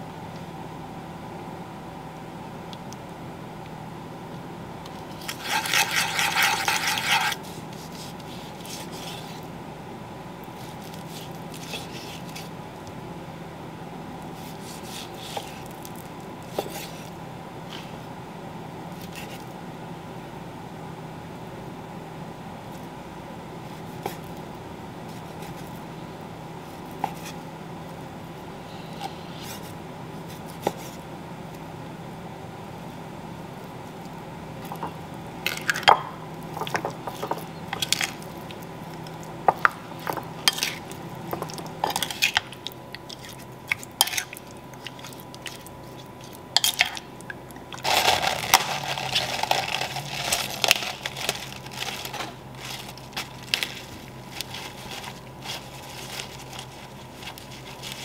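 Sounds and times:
steady low hum: 0.0s - 58.0s
paper towel rustling: 47.8s - 58.0s.

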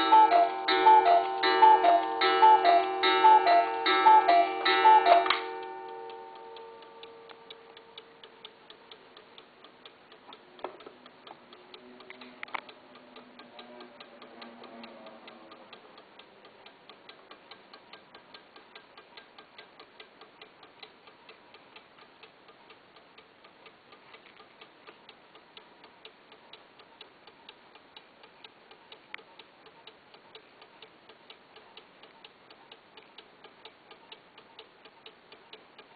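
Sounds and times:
sharp clock click: 0.0s - 23.8s
clock ticking: 0.0s - 35.9s.

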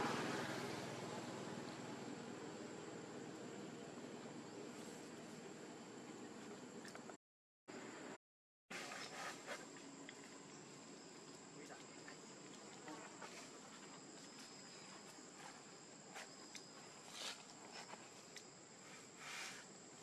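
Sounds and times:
high-pitched insect chorus: 8.8s - 20.0s.

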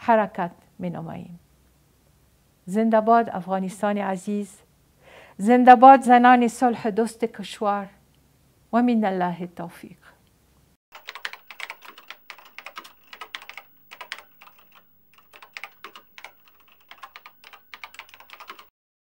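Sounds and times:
keyboard typing clicks: 11.0s - 18.7s.

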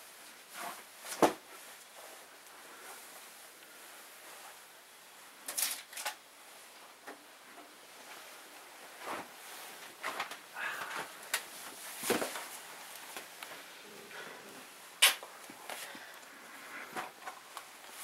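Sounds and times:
rustling at a desk: 0.0s - 18.0s.

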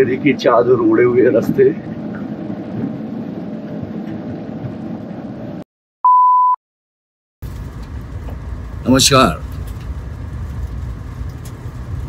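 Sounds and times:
vehicle engine and road noise: 0.0s - 5.6s, 7.4s - 12.0s
test-tone beep: 6.0s - 6.6s.

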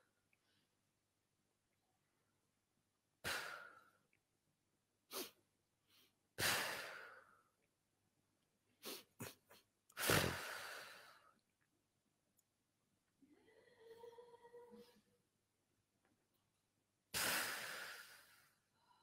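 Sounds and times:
person exhaling sharply: 17.1s - 18.6s.

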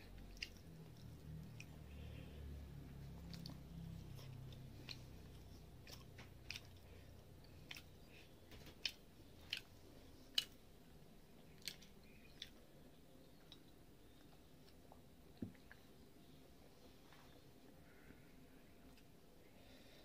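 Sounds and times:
close-miked chewing: 0.0s - 16.7s.

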